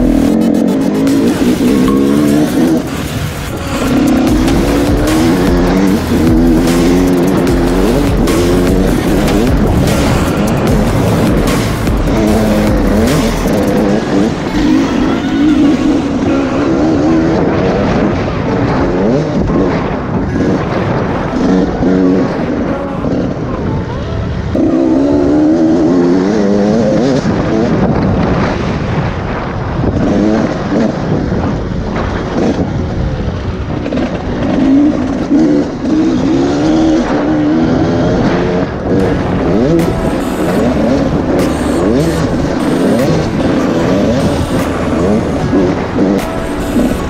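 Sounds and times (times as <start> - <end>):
dirt bike engine revving: 0.0 - 23.5, 33.7 - 47.0.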